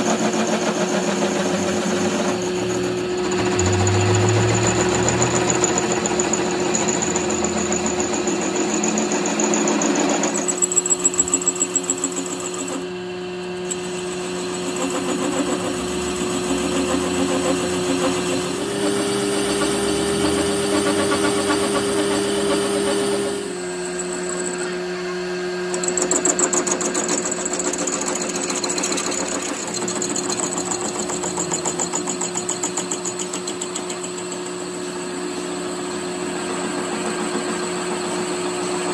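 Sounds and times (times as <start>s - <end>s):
cutting tool chatter: 0.0s - 34.6s
lathe motor hum: 0.0s - 38.9s.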